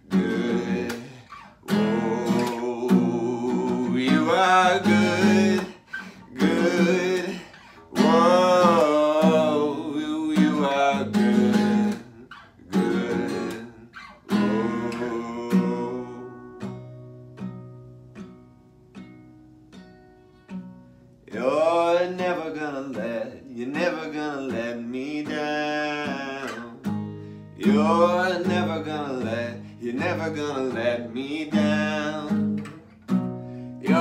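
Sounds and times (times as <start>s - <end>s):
man singing: 0.0s - 16.8s, 21.3s - 32.9s, 33.8s - 34.0s
acoustic guitar strumming: 0.0s - 34.0s.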